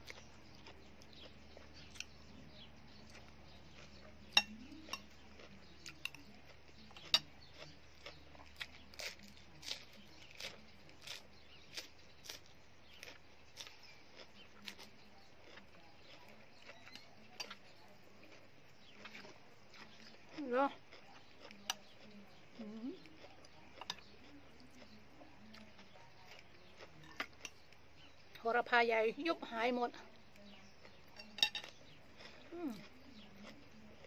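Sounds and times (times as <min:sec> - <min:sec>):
wet chewing: 0:00.0 - 0:28.6, 0:29.9 - 0:34.0
spoon clinking on plate: 0:04.3 - 0:05.1, 0:31.2 - 0:31.8.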